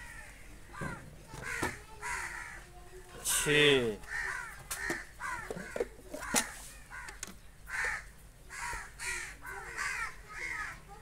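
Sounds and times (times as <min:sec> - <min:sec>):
crows cawing: 0:00.0 - 0:11.0
metal pails knocking: 0:04.8 - 0:06.5.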